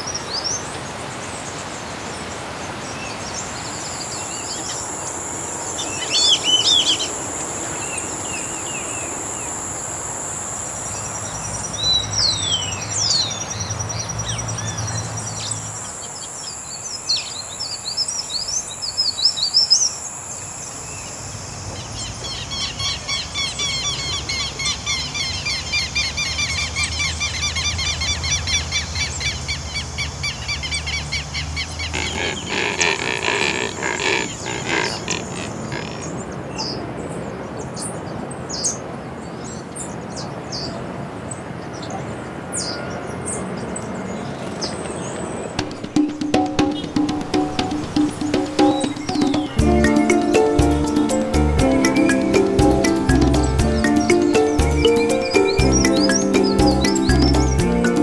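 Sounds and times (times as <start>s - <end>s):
birds chirping: 2.7s - 21.2s, 30.6s - 37.5s, 42.6s - 58.0s
fast pulsing chorus: 4.0s - 12.9s, 31.9s - 36.1s, 45.6s - 58.0s
high-pitched drone: 4.0s - 13.1s, 31.9s - 36.0s, 45.9s - 58.0s.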